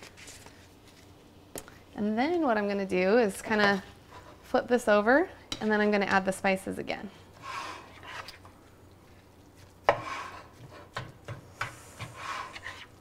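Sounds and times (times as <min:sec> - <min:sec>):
spatula scraping meat in skillet: 0:07.3 - 0:08.4, 0:09.6 - 0:13.0.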